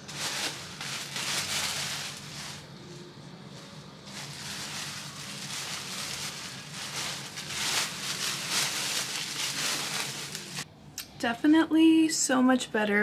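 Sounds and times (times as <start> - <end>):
belongings rustling and shuffling: 0.0 - 10.6.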